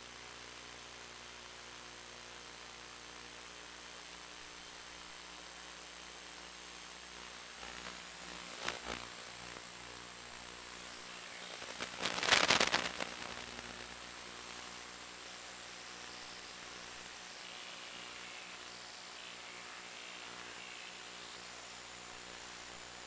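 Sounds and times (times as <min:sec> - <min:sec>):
crackling static: 0:00.0 - 0:23.0
receiver hiss and hum: 0:00.0 - 0:23.0.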